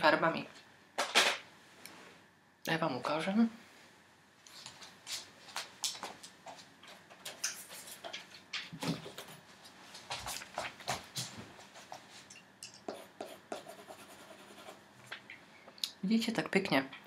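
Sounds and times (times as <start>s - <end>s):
coloured pencil scratching on paper: 12.9s - 14.8s.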